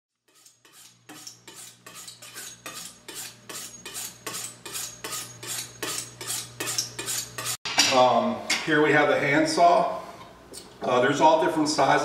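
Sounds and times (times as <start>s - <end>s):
knife on honing steel: 0.2s - 7.6s.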